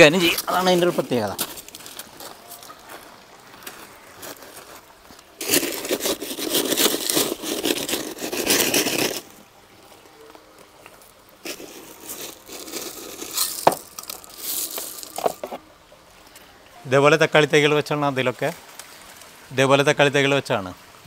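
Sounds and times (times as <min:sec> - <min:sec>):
trowel scraping gravel: 0:03.6 - 0:09.4, 0:11.4 - 0:15.6.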